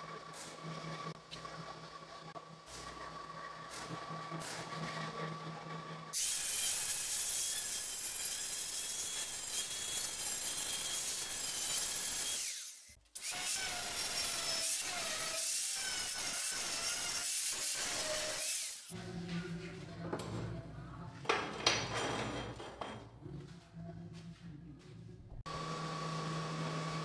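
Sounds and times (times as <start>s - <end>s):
angle grinder grinding metal: 2.2s - 19.0s.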